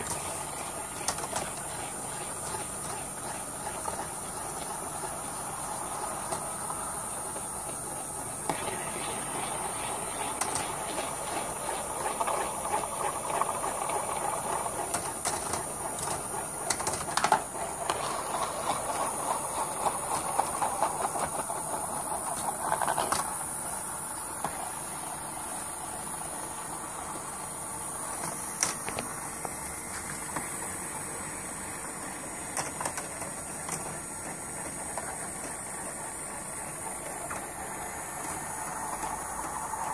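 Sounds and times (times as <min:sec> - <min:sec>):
steel balls rolling on plastic rails: 0:00.0 - 0:39.9.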